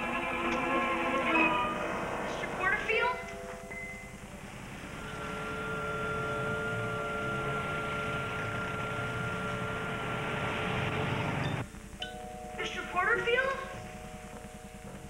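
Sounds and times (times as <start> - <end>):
vehicle engine drone: 0.0 - 12.0.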